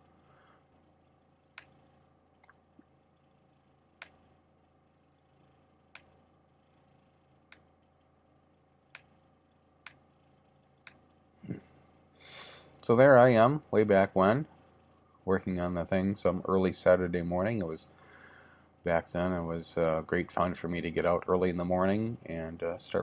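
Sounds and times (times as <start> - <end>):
faint steady hum: 0.0 - 23.0
sharp computer clicks: 0.1 - 12.2.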